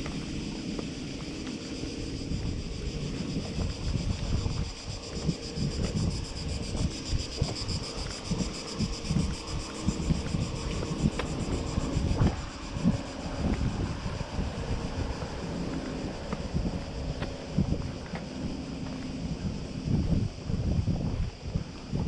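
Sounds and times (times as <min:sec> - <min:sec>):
wind buffeting microphone: 0:00.0 - 0:22.0.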